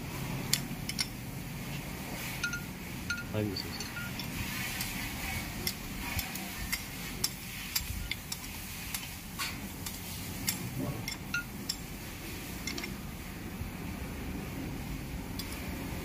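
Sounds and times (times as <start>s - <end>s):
steady low hum: 0.0s - 16.0s
metallic clicks of spanner: 0.5s - 1.2s, 5.6s - 9.1s, 9.8s - 11.9s, 12.6s - 13.0s, 15.4s - 15.7s.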